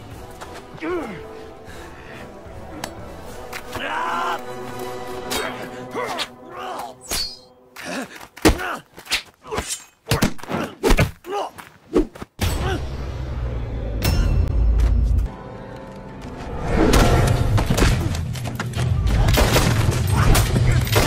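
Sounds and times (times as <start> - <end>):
grunts and yells: 5.3 - 7.1.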